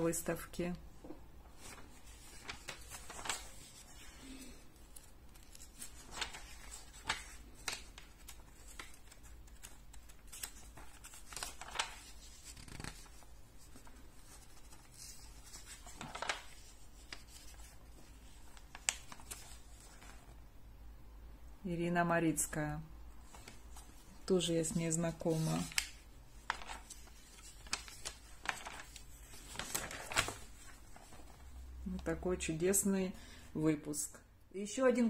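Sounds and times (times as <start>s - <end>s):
magazine pages turning: 1.4s - 20.4s, 23.2s - 31.8s.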